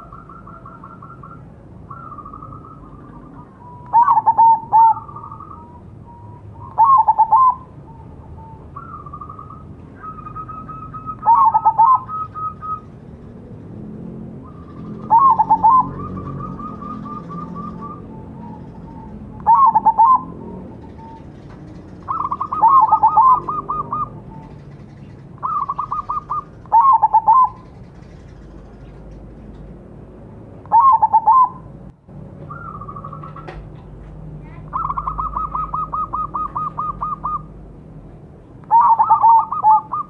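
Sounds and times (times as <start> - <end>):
dove cooing: 0.0 - 12.9, 14.3 - 29.3, 30.6 - 31.7, 32.5 - 33.7, 34.6 - 37.6, 38.7 - 40.0.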